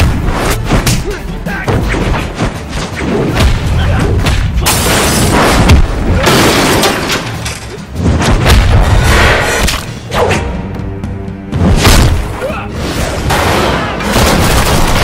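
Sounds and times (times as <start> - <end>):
action score with heavy booms: 0.0 - 15.0
punch and kick hits: 1.7 - 6.6, 8.1 - 9.9, 11.6 - 12.3.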